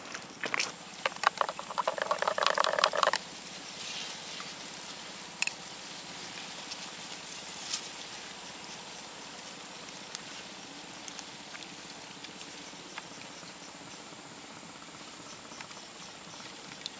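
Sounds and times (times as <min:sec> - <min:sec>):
sharp ticks: 0:00.9 - 0:03.7, 0:05.3 - 0:05.6.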